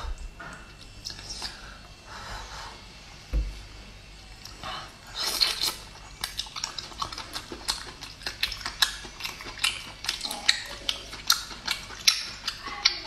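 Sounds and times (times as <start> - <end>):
wet chewing mouth clicks: 5.2 - 13.0.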